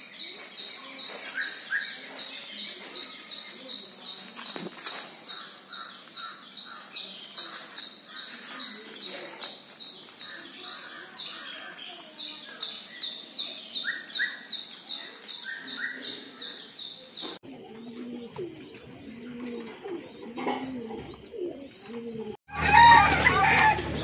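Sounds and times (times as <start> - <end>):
high chirping: 0.0 - 17.4
pigeons cooing: 0.0 - 22.4.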